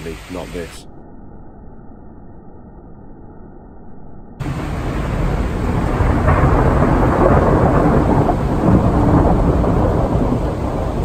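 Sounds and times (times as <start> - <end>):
heavy rain hissing: 0.0 - 0.8, 4.4 - 11.0
thunder rolling: 4.4 - 11.0.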